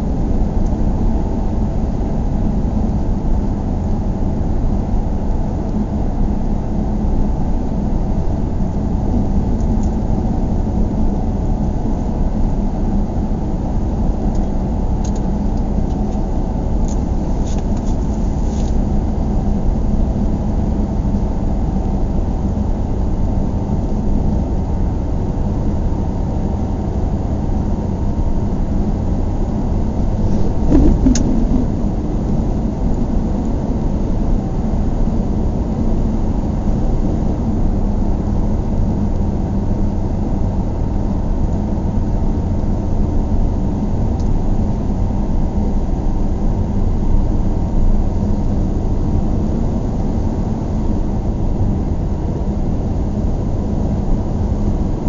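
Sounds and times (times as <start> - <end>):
click: 14.3 - 15.3, 16.8 - 18.0
car driving on highway: 23.7 - 37.0.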